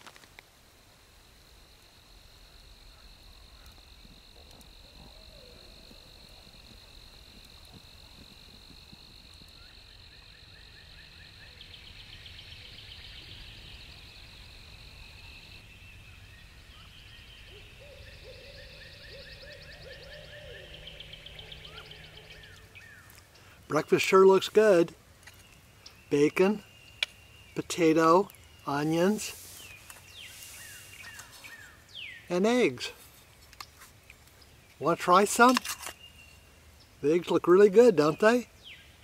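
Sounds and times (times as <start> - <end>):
insects trilling: 0.0 - 39.0
fast pulsing insect trills: 1.0 - 22.9
low animal calls: 2.4 - 14.1, 16.7 - 23.2.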